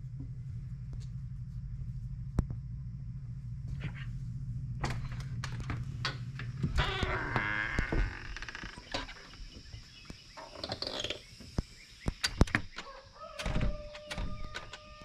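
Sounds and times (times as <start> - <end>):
drawn-out door squeak: 6.7 - 9.6, 10.4 - 11.3, 12.2 - 15.0
door handle and latch clicks: 12.1 - 15.0.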